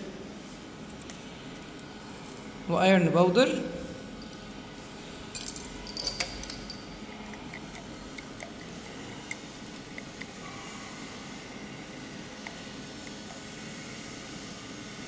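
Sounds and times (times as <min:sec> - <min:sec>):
glass test tubes clinking: 0:04.1 - 0:04.7, 0:05.3 - 0:10.4.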